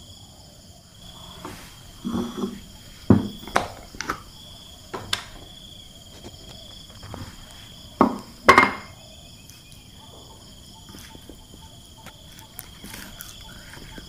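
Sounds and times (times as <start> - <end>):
insects chirping: 0.0 - 14.0
glass dish knocking on wooden table: 2.0 - 3.8, 8.0 - 8.9.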